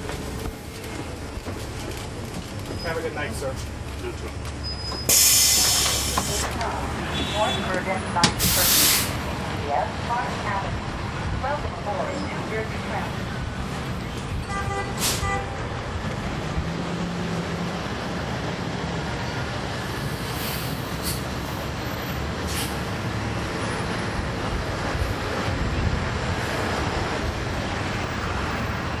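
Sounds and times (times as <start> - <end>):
bus diesel engine running: 0.0 - 29.0
short hisses: 5.1 - 6.5, 8.4 - 9.2.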